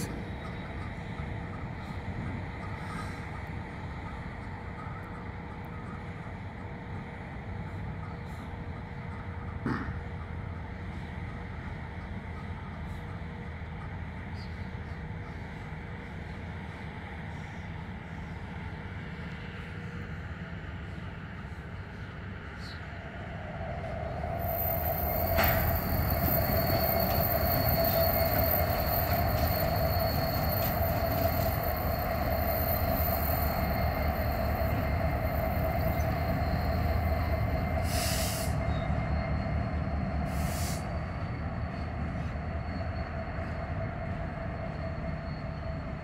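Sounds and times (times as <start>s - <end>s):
diesel locomotive rumbling: 0.0s - 46.0s
wheel flange squeal: 24.0s - 46.0s.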